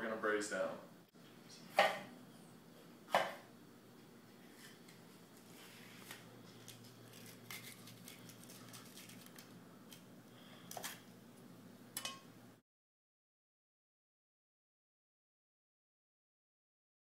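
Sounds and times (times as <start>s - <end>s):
low room hum: 0.0s - 12.6s.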